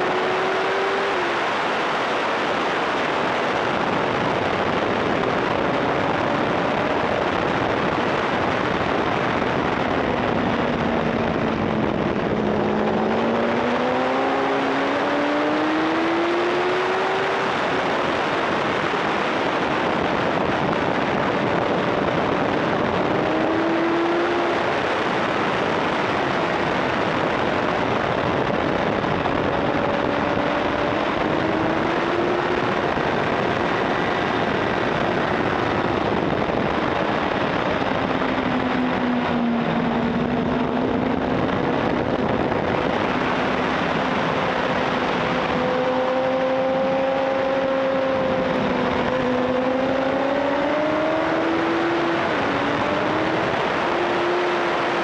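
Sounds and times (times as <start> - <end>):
wind rush at speed: 0.0 - 55.0
motorcycle engine: 4.2 - 19.7, 20.3 - 55.0.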